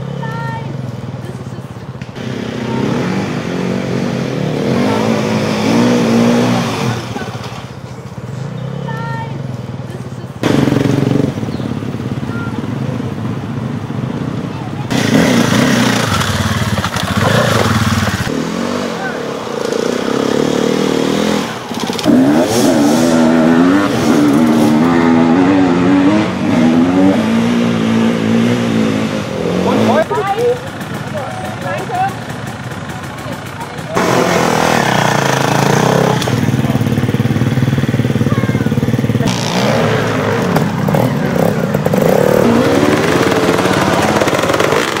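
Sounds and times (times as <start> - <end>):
dirt bike engine revving: 2.1 - 7.8, 10.4 - 45.0.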